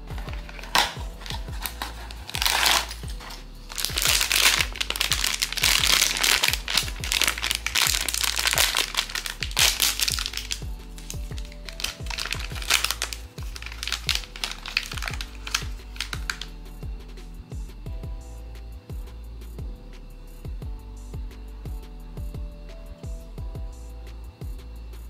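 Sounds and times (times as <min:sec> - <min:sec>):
paper and plastic wrapping crinkling: 0:00.0 - 0:16.5
background music with steady beat: 0:00.0 - 0:25.0.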